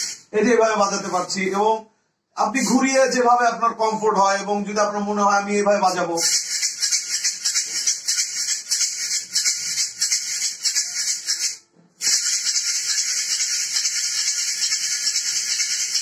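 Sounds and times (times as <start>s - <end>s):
wooden shaker rattling: 0.0s - 0.3s, 5.9s - 16.0s.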